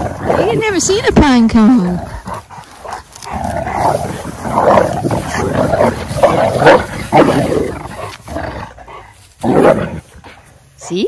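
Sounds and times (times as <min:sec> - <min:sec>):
dogs growling in play-fighting: 0:00.0 - 0:10.6.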